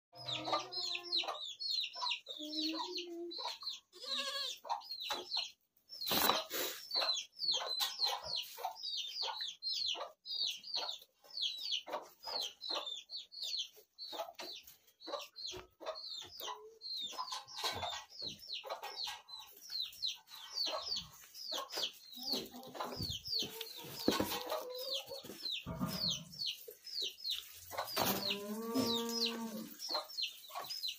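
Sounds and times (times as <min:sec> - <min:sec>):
small birds chirping: 0:00.2 - 0:30.9
goat bleating: 0:03.9 - 0:04.7.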